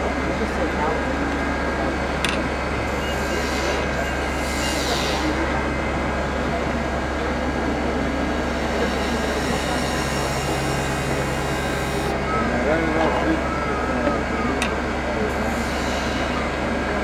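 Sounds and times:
wood lathe humming: 8.4s - 17.0s.

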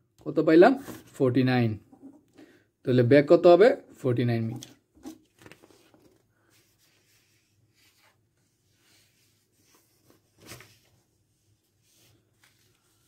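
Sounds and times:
paper sheets rustling: 4.4s - 13.0s.

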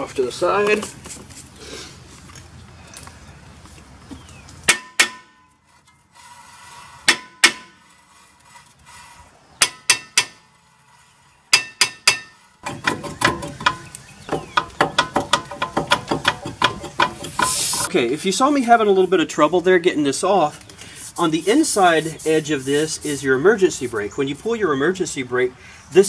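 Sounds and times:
hammer blows on brake rotor: 7.0s - 7.9s.

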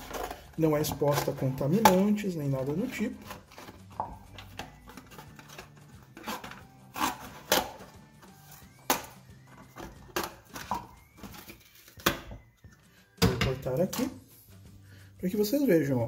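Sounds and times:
scissors cutting carton: 5.0s - 7.9s.

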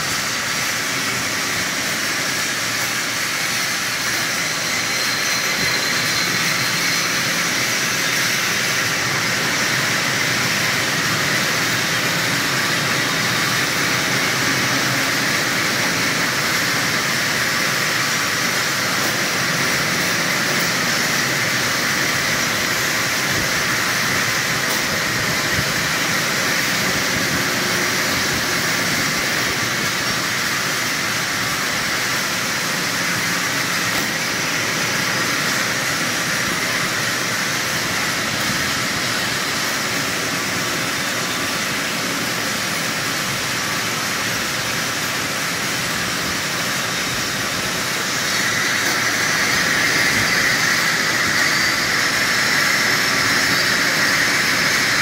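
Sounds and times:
lathes running: 0.2s - 55.0s.

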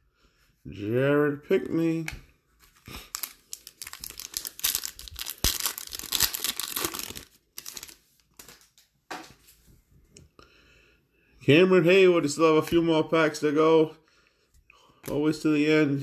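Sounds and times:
foil wrapper tearing and crinkling: 2.8s - 8.8s.

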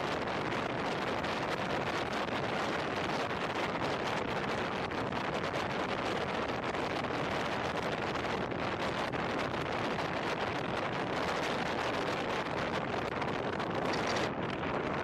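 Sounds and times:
wind rushing over microphone: 0.0s - 15.0s
tyre and road noise: 13.8s - 14.3s.

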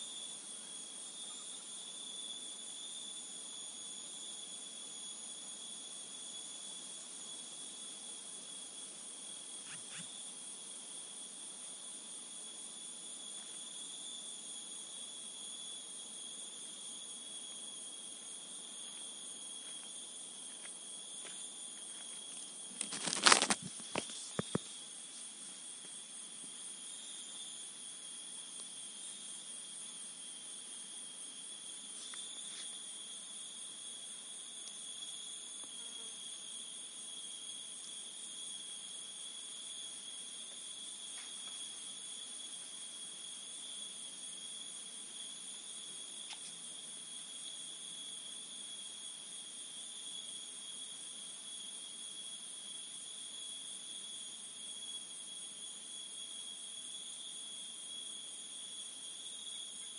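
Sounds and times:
crickets and insects shrilling: 0.0s - 59.9s.

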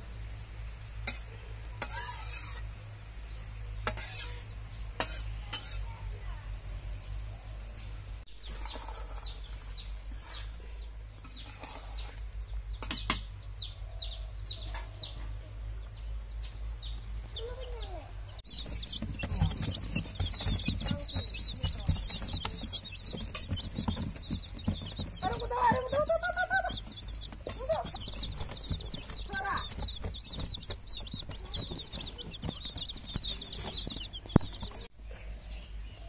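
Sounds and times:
chicks peeping: 0.0s - 36.0s
metal spatula scraping a wok: 1.8s - 2.7s, 3.8s - 5.9s, 11.2s - 12.2s.

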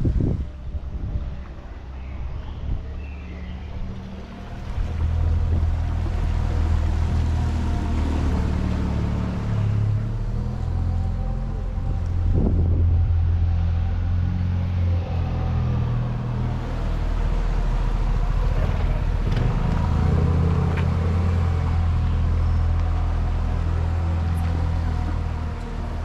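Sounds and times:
large engine droning: 0.0s - 26.0s.

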